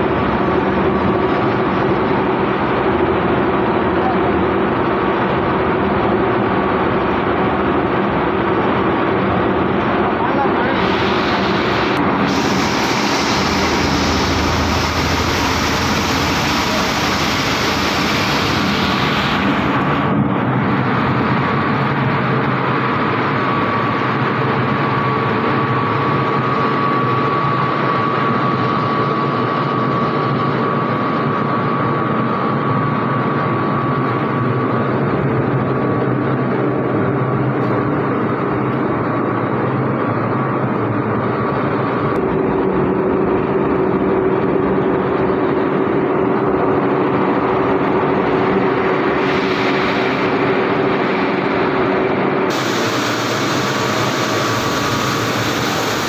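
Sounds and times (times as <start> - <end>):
plastic agglomerator running: 5.6 - 21.0, 52.5 - 56.0
loud hiss of water on hot plastic: 10.6 - 20.1, 52.5 - 56.0.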